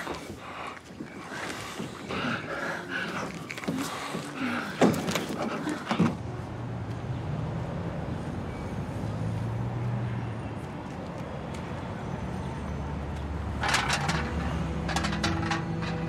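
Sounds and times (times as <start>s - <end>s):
heavy breathing: 0.0s - 6.3s
night street ambience hum: 0.0s - 16.0s.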